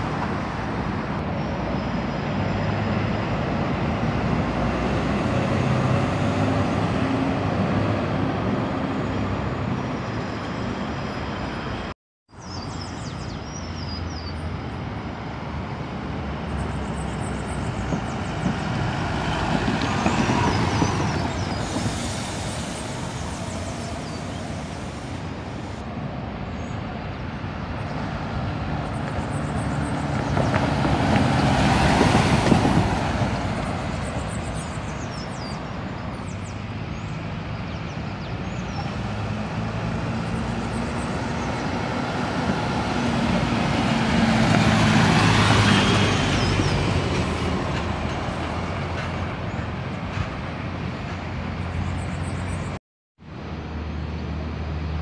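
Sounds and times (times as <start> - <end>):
bus passing: 0.0 - 55.0
traffic noise: 0.0 - 55.0.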